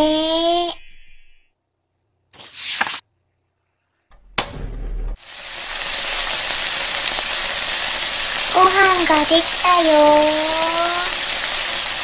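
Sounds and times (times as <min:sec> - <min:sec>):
brief low rumble: 0:04.1 - 0:05.2
frying sizzle: 0:05.2 - 0:12.0.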